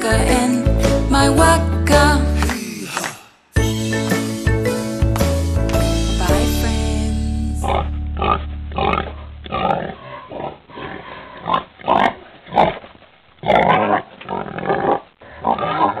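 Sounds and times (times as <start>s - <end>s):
pig grunting: 7.6s - 16.0s.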